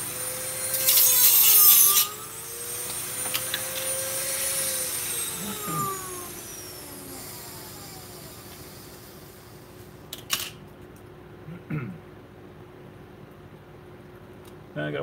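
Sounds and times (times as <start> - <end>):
rotary tool motor whine: 0.0 - 9.8.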